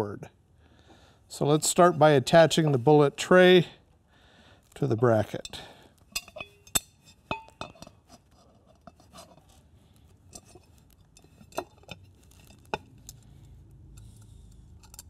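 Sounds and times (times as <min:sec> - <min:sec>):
metal parts clinking on tray: 0:05.4 - 0:07.9, 0:14.0 - 0:15.0.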